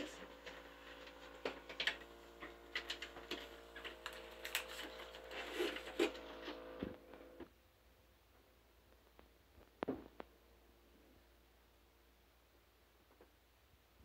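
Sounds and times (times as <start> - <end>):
machine humming: 0.0 - 7.5
plastic bags crinkling and clicking: 0.3 - 6.6.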